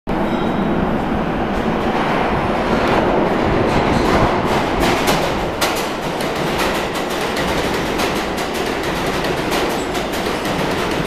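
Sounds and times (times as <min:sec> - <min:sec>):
subway train rumbling: 0:00.1 - 0:11.0
wheel clicks over rail joints: 0:03.7 - 0:11.0.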